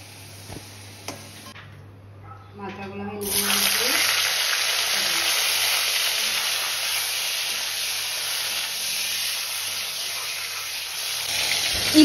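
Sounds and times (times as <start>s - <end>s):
fish frying in hot oil: 3.2s - 12.0s.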